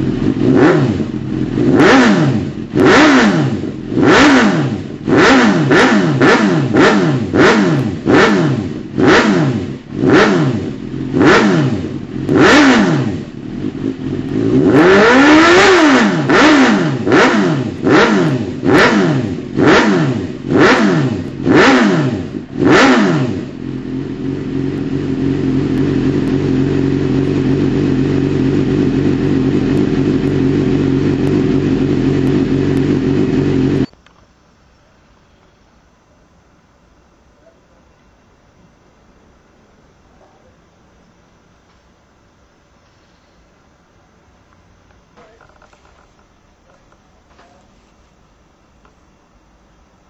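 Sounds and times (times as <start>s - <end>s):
motorcycle engine idling: 0.0s - 33.9s
motorcycle engine revving: 0.0s - 33.9s.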